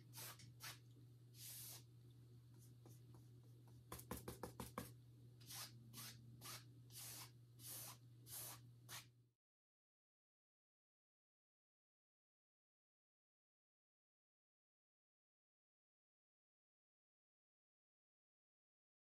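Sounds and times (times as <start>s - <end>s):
paintbrush swishing on canvas: 0.0s - 0.8s, 1.4s - 1.9s, 4.0s - 9.1s
low steady hum: 0.0s - 8.9s
brush tapping on palette: 2.8s - 5.0s.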